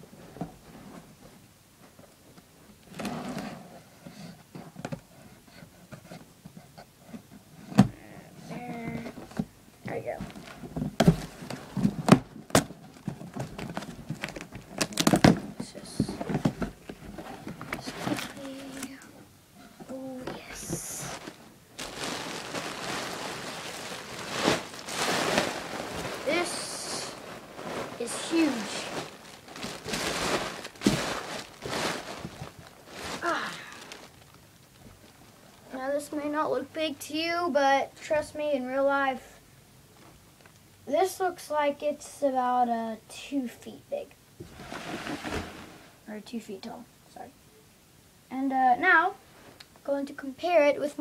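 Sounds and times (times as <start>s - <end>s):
rustling: 4.5s - 36.7s, 44.4s - 46.1s, 49.1s - 49.9s
plastic packaging crinkling: 10.2s - 18.9s, 19.9s - 35.7s.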